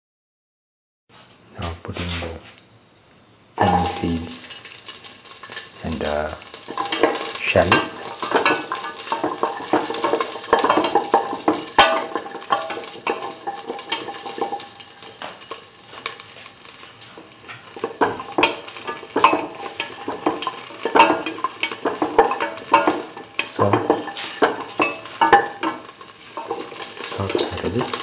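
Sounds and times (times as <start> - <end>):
seeds sizzling in hot oil: 1.4 - 28.0
crackles and pops: 3.5 - 28.0
shallot dropped into pan: 3.6 - 15.6.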